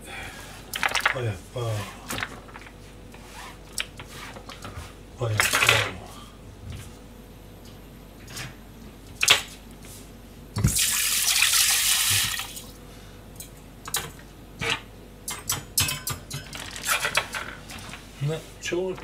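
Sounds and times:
water running into steel sink: 0:10.7 - 0:12.6.

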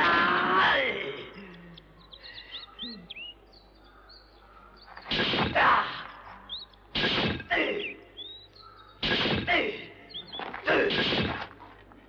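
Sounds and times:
birds chirping faintly: 0:00.0 - 0:12.0
sharp chop strikes: 0:05.1 - 0:05.8, 0:06.9 - 0:07.7, 0:09.0 - 0:09.8, 0:10.7 - 0:11.6.

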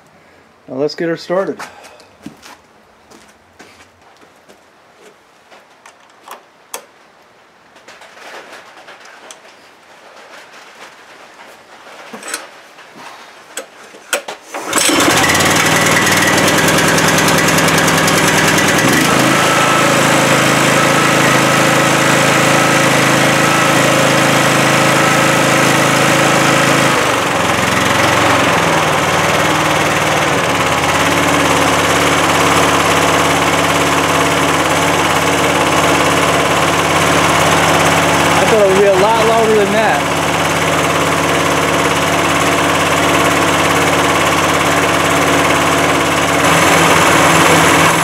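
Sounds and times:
small engine running: 0:14.6 - 0:48.0.

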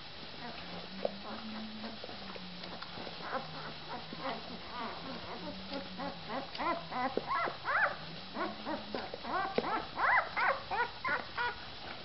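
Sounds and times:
puppy squeaking and whimpering: 0:03.2 - 0:11.6.

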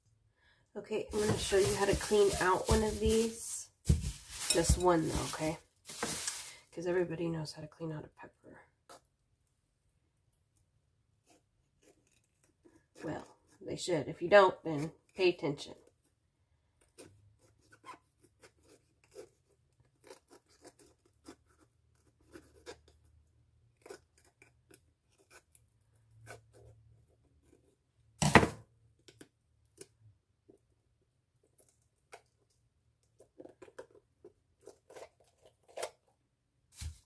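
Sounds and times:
knife cutting bell pepper: 0:01.0 - 0:06.5, 0:16.8 - 0:28.6, 0:34.6 - 0:36.1.

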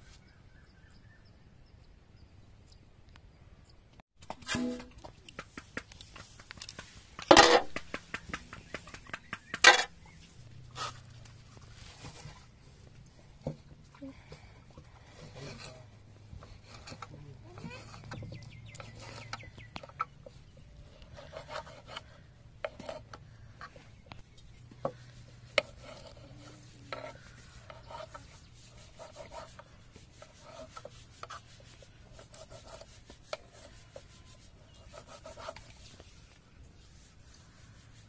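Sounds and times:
knife scraping on board: 0:04.4 - 0:04.9, 0:09.5 - 0:09.9, 0:15.1 - 0:20.1, 0:20.9 - 0:23.2, 0:24.8 - 0:36.0.

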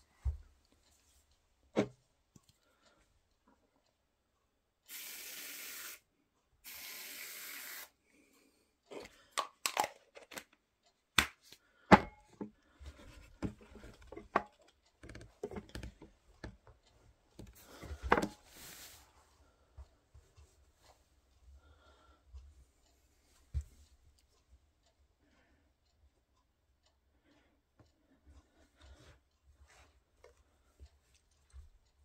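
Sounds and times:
aerosol can spraying: 0:04.9 - 0:06.0, 0:06.6 - 0:08.0
knocks clicks and rustles: 0:11.9 - 0:18.4.

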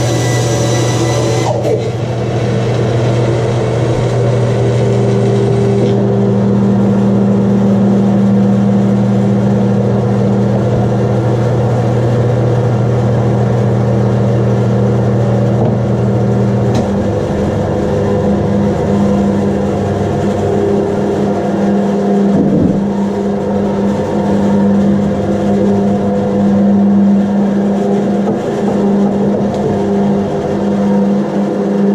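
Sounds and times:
saw blade cutting wood: 0:00.0 - 0:02.0
bandsaw humming: 0:00.0 - 0:31.9.

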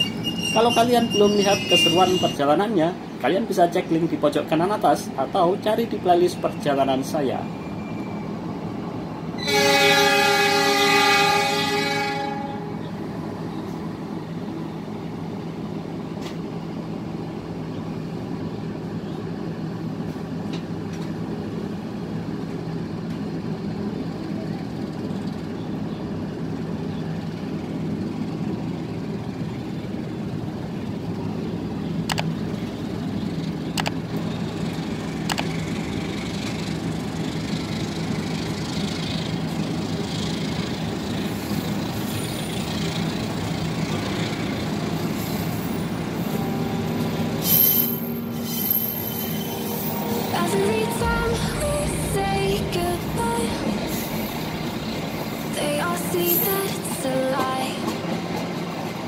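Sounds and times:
diesel engine humming: 0:00.0 - 0:59.0
short sharp clicks: 0:33.8 - 0:34.0.

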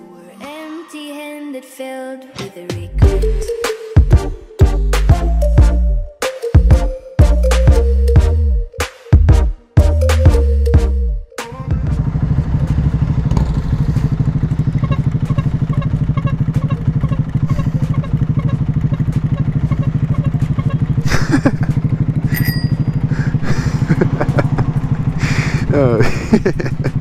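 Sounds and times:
motorcycle engine idling: 0:11.6 - 0:27.0.

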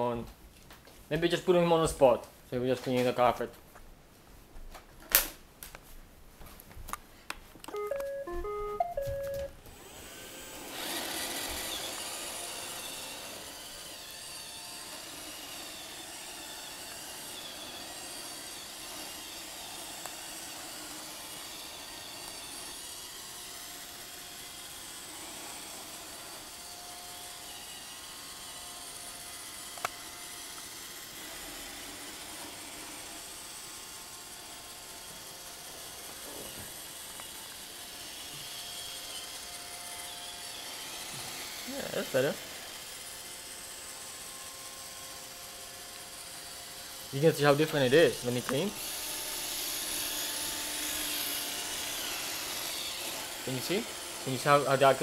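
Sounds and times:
electronic beep tune: 0:07.7 - 0:09.5
robot vacuum motor and brushes: 0:07.8 - 0:55.0.

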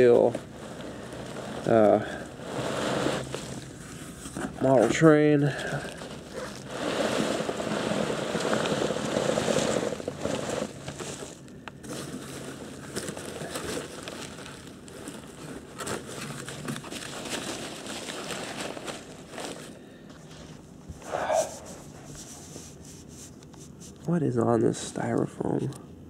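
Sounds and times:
packing peanuts rustling: 0:00.0 - 0:20.7
plastic wrapping crinkling: 0:00.0 - 0:20.7.

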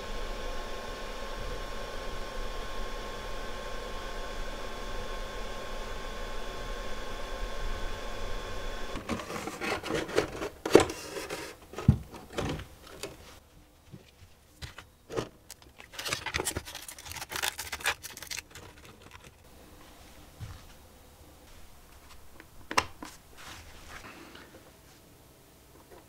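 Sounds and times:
plastic parts clicking and scraping: 0:09.0 - 0:13.2, 0:14.6 - 0:19.4.

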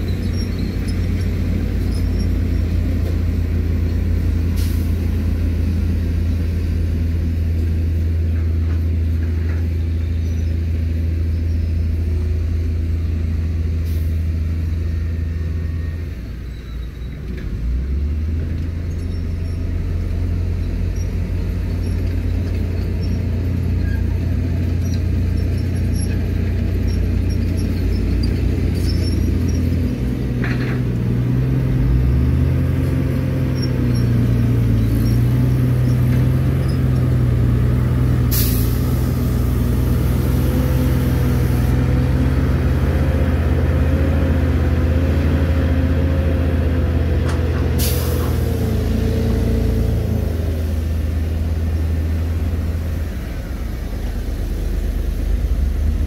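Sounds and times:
diesel truck engine rumble: 0:00.0 - 0:56.0
short sharp hiss: 0:38.3 - 0:39.0.

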